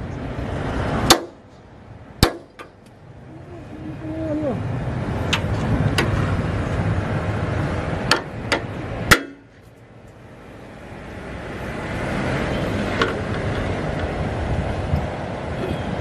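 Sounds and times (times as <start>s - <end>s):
hammer striking metal bolt: 8.1s - 9.4s
wind noise: 11.8s - 16.0s.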